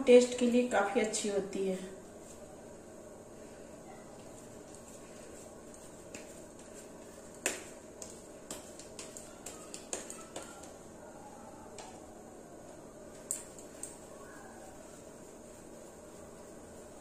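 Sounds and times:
light clicks and taps of dough: 0:04.2 - 0:10.9, 0:11.7 - 0:12.0.

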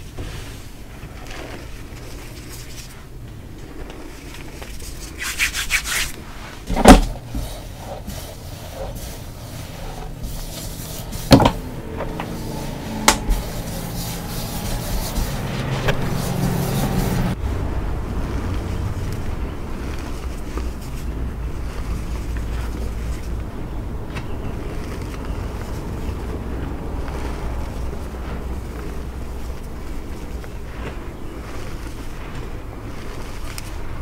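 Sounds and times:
hands rubbing powdered chalk: 0:00.0 - 0:34.0
sharp pats: 0:04.6 - 0:17.4.

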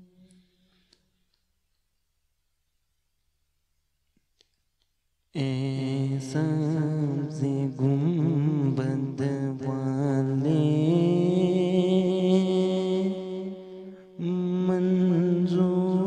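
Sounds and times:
man singing through speaker: 0:05.4 - 0:13.4, 0:14.2 - 0:16.0.

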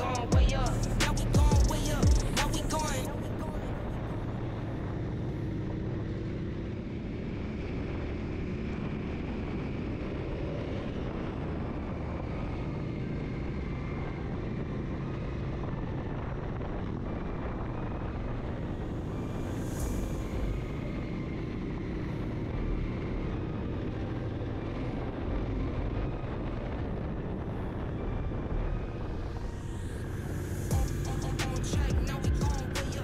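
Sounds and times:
motorcycle engine running: 0:00.0 - 0:03.0, 0:30.7 - 0:33.0
road noise: 0:00.0 - 0:33.0.

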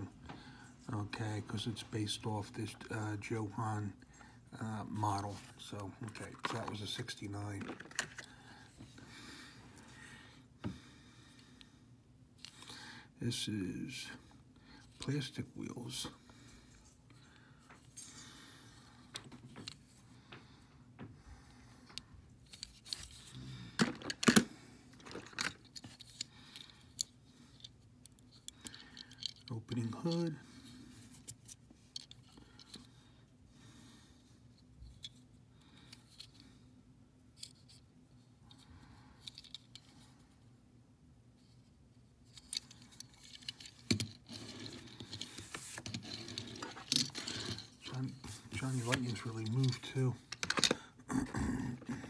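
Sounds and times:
toy cars clicking and scraping: 0:22.5 - 0:30.3, 0:42.3 - 0:50.8.

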